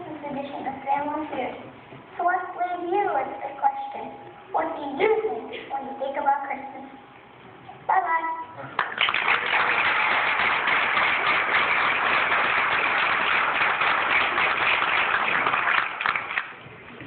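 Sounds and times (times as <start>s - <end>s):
audience applauding: 8.8s - 16.6s.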